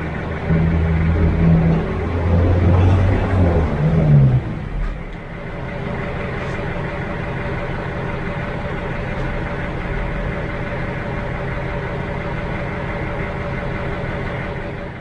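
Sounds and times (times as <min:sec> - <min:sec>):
steady tones: 0:00.0 - 0:05.4
engine idling: 0:00.0 - 0:15.0.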